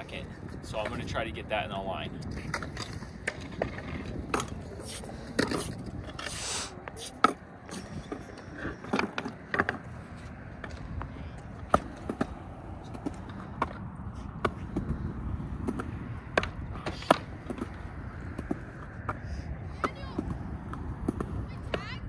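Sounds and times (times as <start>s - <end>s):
skateboard wheels rolling: 0.0s - 22.0s
skateboard clacks on concrete: 2.2s - 6.3s, 15.6s - 19.2s.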